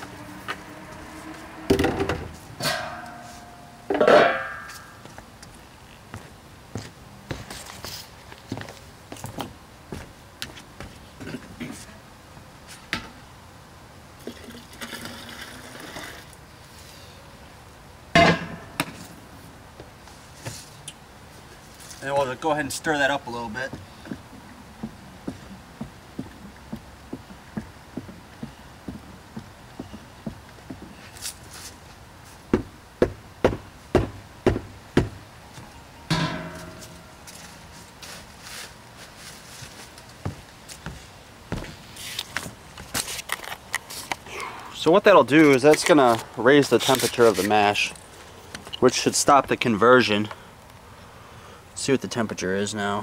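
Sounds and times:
metal kettle clanking down: 0:36.1 - 0:36.8.

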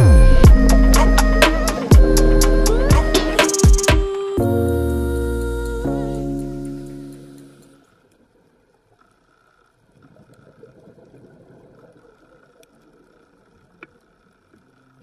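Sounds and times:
background music: 0:00.0 - 0:07.8
bubbling water crackling: 0:08.7 - 0:15.0.

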